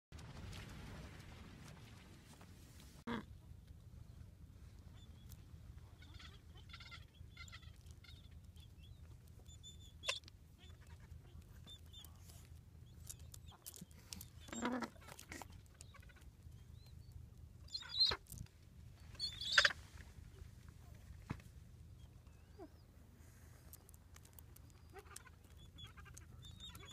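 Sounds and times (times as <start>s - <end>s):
faint low rumble: 0.2s - 26.9s
penguins chirping and squawking: 13.7s - 16.2s, 19.2s - 19.8s, 24.6s - 26.9s.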